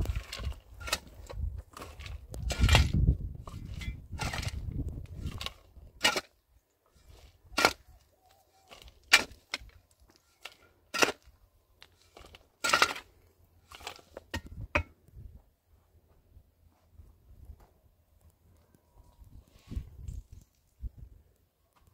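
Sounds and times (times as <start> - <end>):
rough scraping rustling: 0.0 - 14.9.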